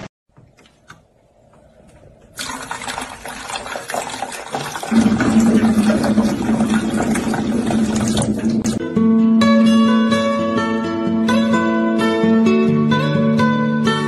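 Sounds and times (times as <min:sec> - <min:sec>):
water running from tap: 0:02.4 - 0:08.8.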